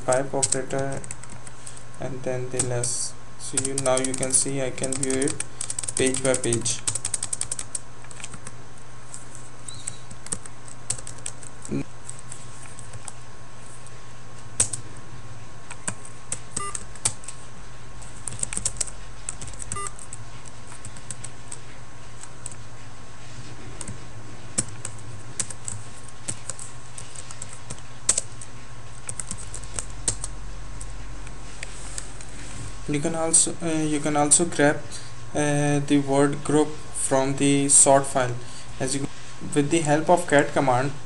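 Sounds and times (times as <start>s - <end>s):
keyboard typing: 0.0s - 1.9s, 3.5s - 13.2s, 14.6s - 14.8s, 15.6s - 17.4s, 18.0s - 22.6s, 23.7s - 32.3s
electrical hum: 0.0s - 41.0s
faint constant whine: 0.0s - 41.0s.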